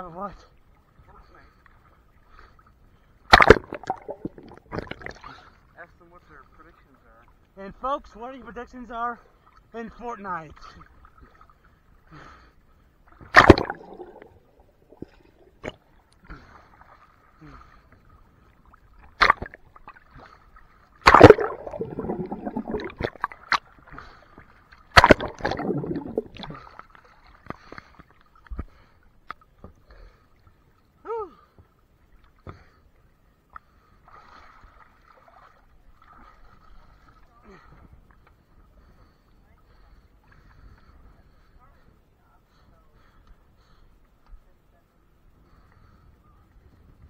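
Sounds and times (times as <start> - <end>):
water splashing beside boat: 0.6 - 7.5, 13.0 - 30.7, 33.6 - 41.9.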